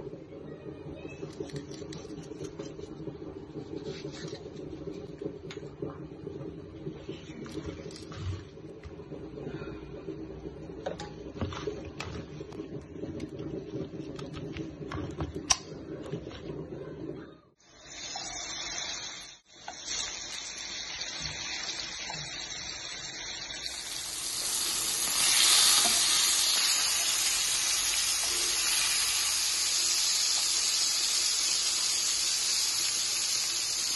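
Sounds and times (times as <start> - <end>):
fish sizzling in hot oil: 17.8 - 33.9.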